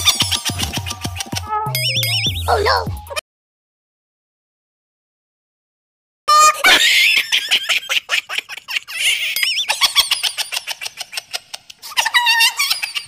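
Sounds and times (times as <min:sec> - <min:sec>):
warbling whistle tones: 0:01.7 - 0:02.6.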